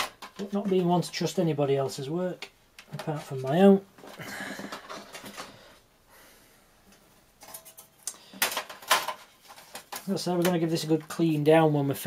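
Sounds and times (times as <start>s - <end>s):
metallic clatter and scrape: 7.4s - 10.2s.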